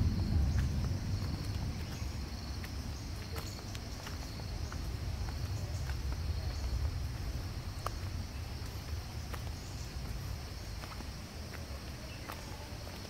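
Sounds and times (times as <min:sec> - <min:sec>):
low rumble: 0:00.0 - 0:03.8
footsteps crunching on a trail: 0:00.0 - 0:13.0
insects trilling: 0:00.0 - 0:13.0.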